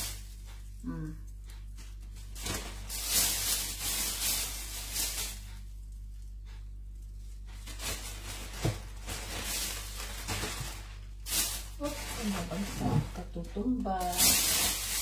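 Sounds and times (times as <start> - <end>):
plastic bag rustling: 0.0 - 0.7, 1.4 - 6.3, 7.1 - 15.0
steady low hum: 0.0 - 15.0.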